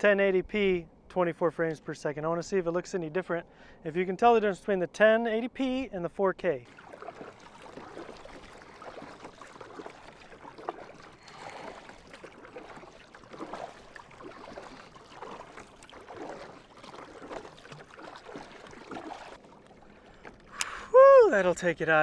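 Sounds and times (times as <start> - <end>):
paddle splashing water: 6.4 - 22.0.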